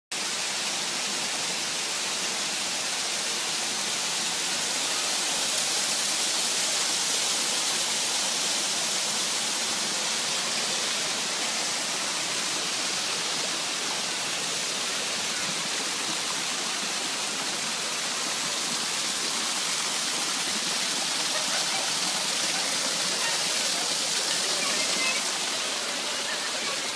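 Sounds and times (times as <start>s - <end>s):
waterfall rushing: 0.1s - 26.9s.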